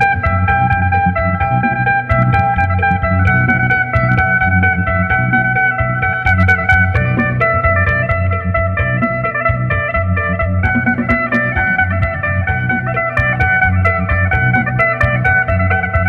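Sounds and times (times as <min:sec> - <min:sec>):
electric lute fast picked notes: 0:00.0 - 0:16.0
pulsing low bass: 0:00.0 - 0:16.0.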